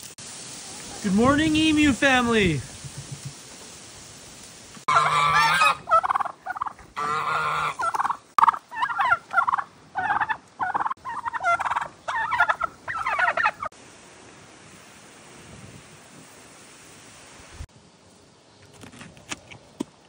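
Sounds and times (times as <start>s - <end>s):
turkeys gobbling: 2.6s - 3.6s, 4.8s - 13.8s.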